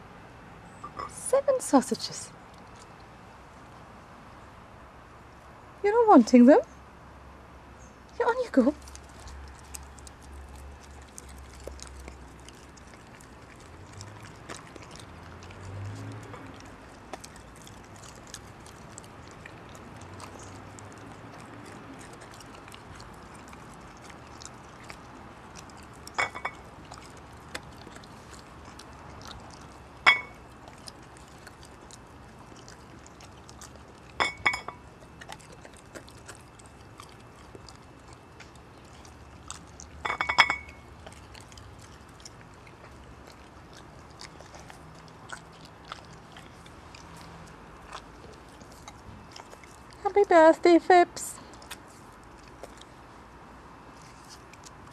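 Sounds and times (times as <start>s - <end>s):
dog chewing and licking: 0.8s - 3.8s, 8.1s - 54.9s
plate clinking: 26.2s - 26.6s, 30.0s - 30.4s, 34.2s - 34.8s, 40.0s - 40.8s.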